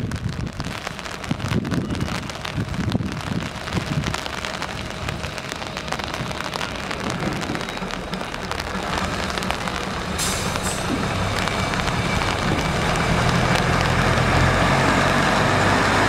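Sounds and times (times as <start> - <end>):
steady rain: 0.0 - 16.0
diesel engine idling: 3.6 - 16.0.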